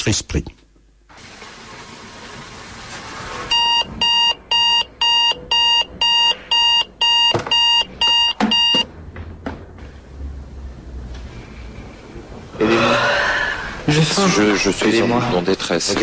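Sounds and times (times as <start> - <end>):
electronic alarm beeping: 3.5 - 8.9.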